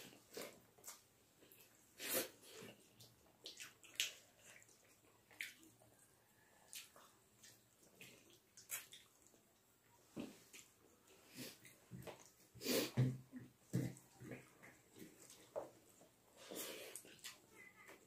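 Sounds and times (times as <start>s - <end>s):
people eating with wet smacks: 0.0s - 18.0s.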